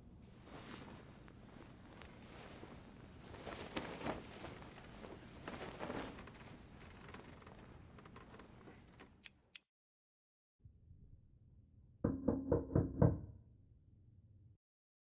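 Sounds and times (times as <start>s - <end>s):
bedding rustling: 0.2s - 9.0s.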